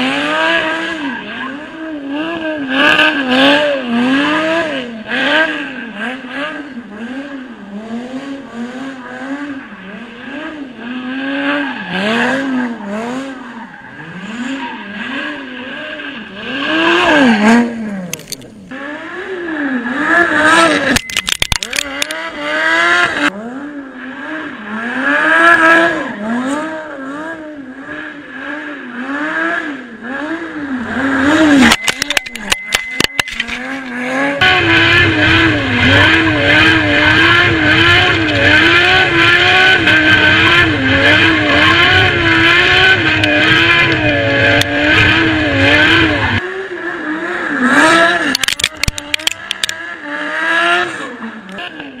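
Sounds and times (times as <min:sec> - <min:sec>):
sports car engine revving: 0:00.0 - 0:52.0
exhaust crackles: 0:30.1 - 0:46.4.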